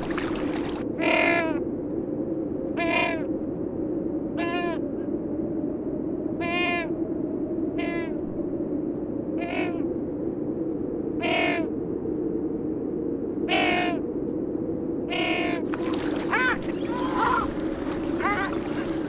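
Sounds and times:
penguins calling: 15.8s - 19.0s.

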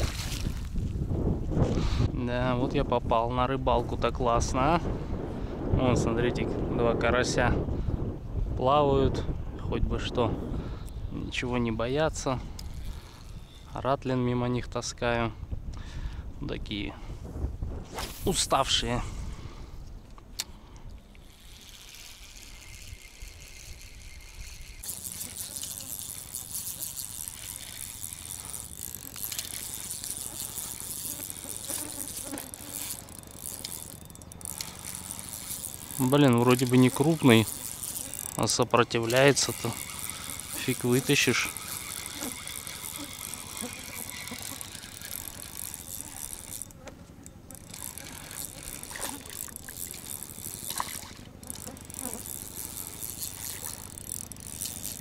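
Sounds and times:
wind rumble on microphone: 0.0s - 13.6s, 14.4s - 20.0s
fishing reel rattling: 11.6s - 13.8s, 20.5s - 55.0s.

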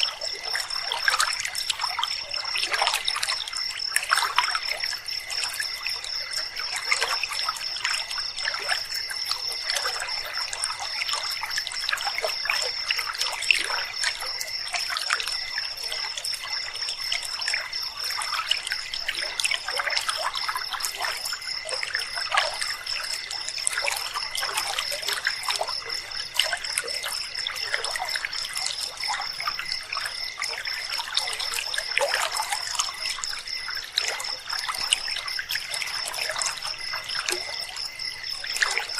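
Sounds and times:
insects trilling: 0.0s - 38.9s
water trickling over stones: 0.0s - 38.9s.

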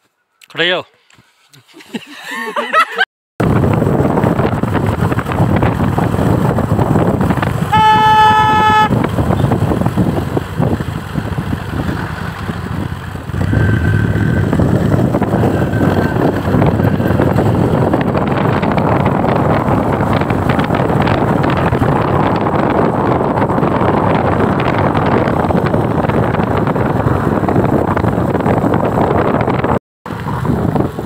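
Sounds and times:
vehicle and road noise: 3.4s - 31.0s
vehicle horn: 7.6s - 9.5s.

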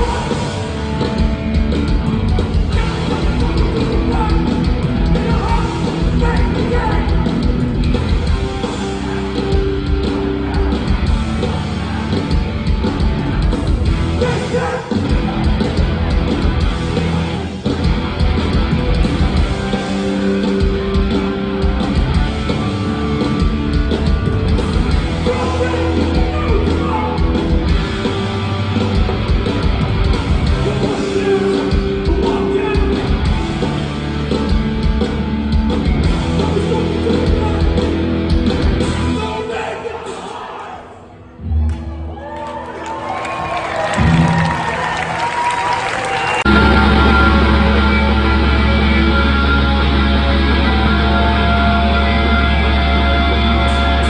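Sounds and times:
pounding drums: 0.0s - 39.2s
distorted electric guitars: 0.0s - 39.5s, 46.1s - 54.0s
bass guitar: 0.0s - 39.6s, 43.4s - 54.0s
shouted vocals: 2.7s - 7.4s, 14.1s - 15.4s, 39.1s - 54.0s.

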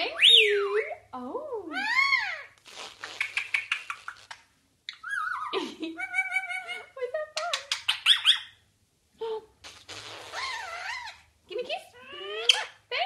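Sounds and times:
parakeet chattering: 0.0s - 0.8s, 1.7s - 8.6s, 9.6s - 11.3s, 11.9s - 12.9s
kissing smacks: 2.6s - 4.5s, 9.6s - 10.7s.

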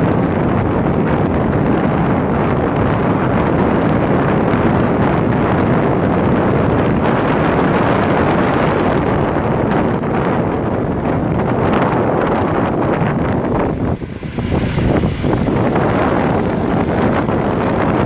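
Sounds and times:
motorcycle noise: 0.0s - 18.0s
wind buffeting microphone: 0.0s - 18.0s.

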